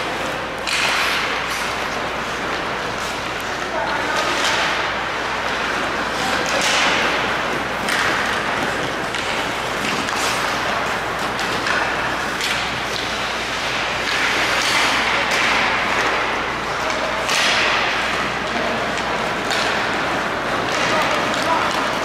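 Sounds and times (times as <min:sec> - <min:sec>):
skate blades scraping ice: 0:00.0 - 0:22.0.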